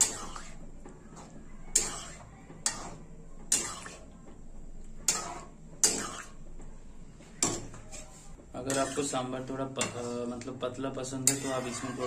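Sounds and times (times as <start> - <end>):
metal spoon clinking on pan: 1.7 - 3.8, 5.0 - 6.2, 11.2 - 12.0.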